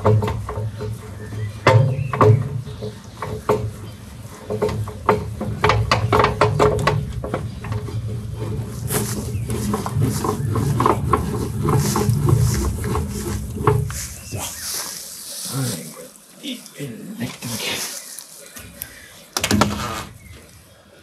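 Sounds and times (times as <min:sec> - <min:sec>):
metal clicks and clanks: 0:00.0 - 0:14.1
steady low hum: 0:00.0 - 0:19.3.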